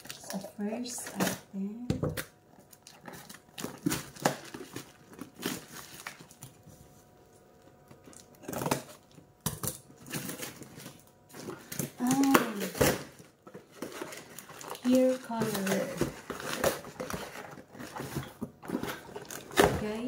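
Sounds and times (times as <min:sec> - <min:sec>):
cardboard parcel rustling: 0:02.5 - 0:20.0
packing tape picked at: 0:11.7 - 0:13.1.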